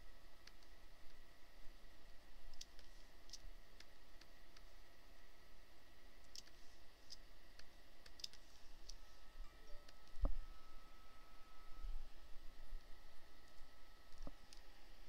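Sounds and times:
faint steady hum: 0.0s - 15.0s
mouse clicks: 0.4s - 0.7s, 2.5s - 4.7s, 6.2s - 9.0s.

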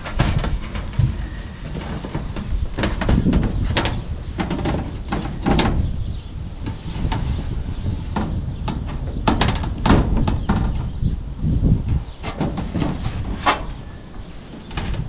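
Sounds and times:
metal knocking and scraping on metal: 0.0s - 11.2s, 11.8s - 15.0s.

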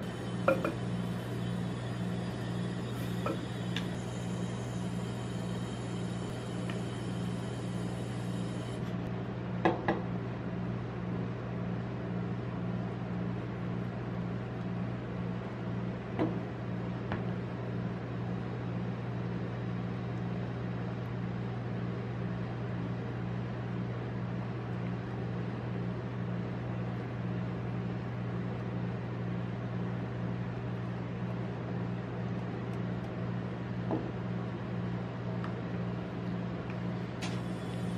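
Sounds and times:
cold plate machine humming: 0.0s - 9.8s, 30.6s - 37.9s.

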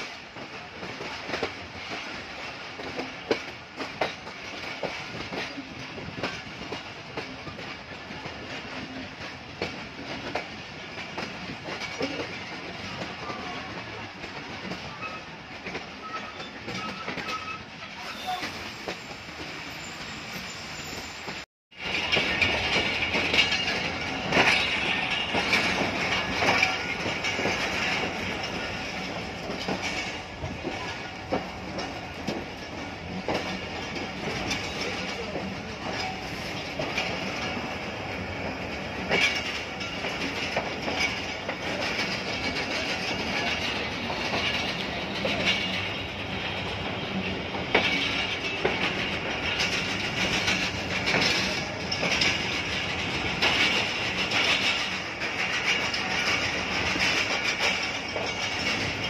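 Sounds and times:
train wheels clacking over rail joints: 0.0s - 19.8s, 21.2s - 59.0s
steady train rumble: 0.0s - 59.0s
high wheel squeal: 16.0s - 21.4s.

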